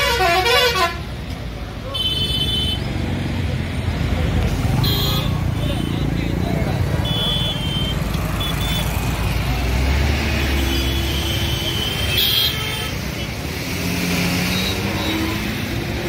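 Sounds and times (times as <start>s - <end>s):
highway traffic passing: 0.0s - 16.0s
vehicle horn toot: 7.0s - 8.8s.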